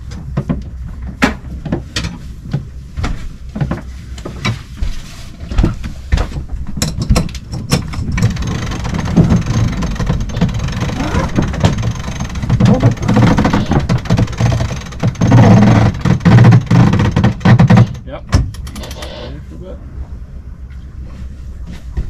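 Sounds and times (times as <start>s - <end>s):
low wind rumble: 0.0s - 22.0s
sheet winch clicking: 7.6s - 19.2s.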